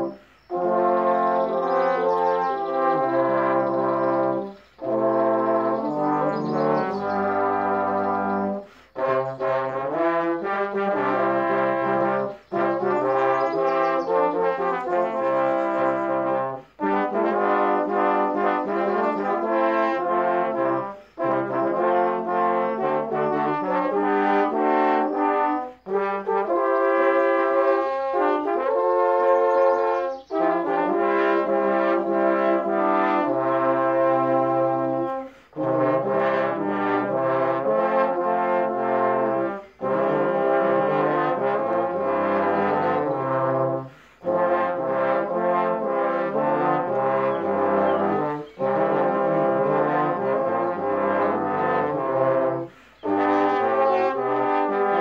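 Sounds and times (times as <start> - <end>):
trombones playing chords: 0.0 - 55.0
player breathing: 0.2 - 0.5, 8.6 - 9.0, 35.2 - 35.6, 43.9 - 44.3, 52.7 - 53.0.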